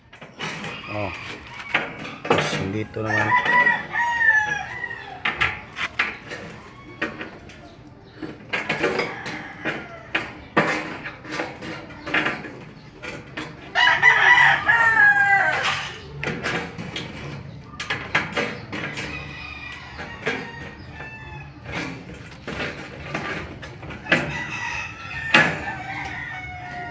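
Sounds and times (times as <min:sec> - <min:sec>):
chickens clucking: 0:00.0 - 0:26.9
rooster crowing: 0:00.6 - 0:02.2, 0:02.9 - 0:05.4, 0:13.8 - 0:15.8, 0:24.1 - 0:26.9.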